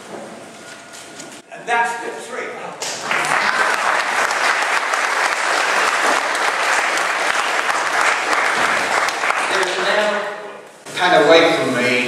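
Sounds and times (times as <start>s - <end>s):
audience applauding: 2.8s - 10.3s.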